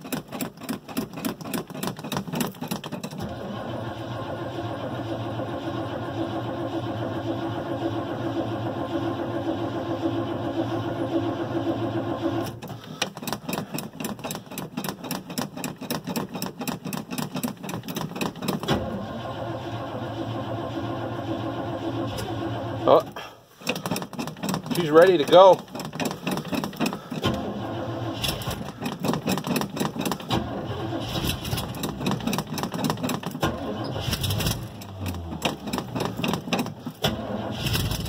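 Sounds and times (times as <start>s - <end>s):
starter motor cranking: 0.0s - 38.0s
car engine running: 3.2s - 12.6s, 17.5s - 38.0s.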